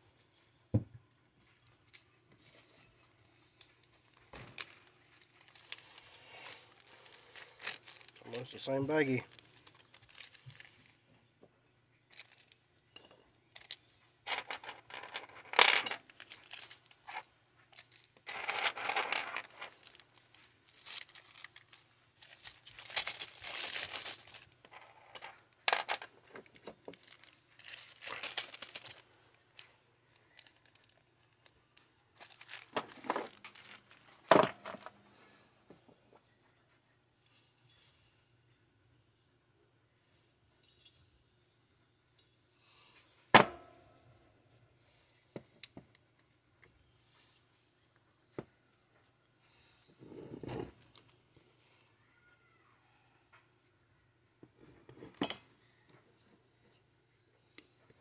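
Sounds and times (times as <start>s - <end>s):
screws dropped into plastic bag: 4.3s - 10.7s, 13.5s - 29.0s, 32.2s - 34.9s
steel screws clinking: 20.7s - 24.5s, 26.6s - 29.0s.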